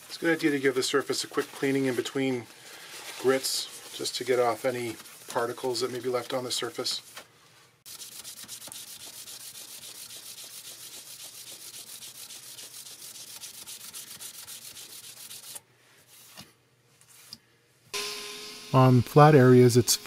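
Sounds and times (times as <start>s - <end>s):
abrasive pad scratching on lacquer: 7.9s - 15.6s.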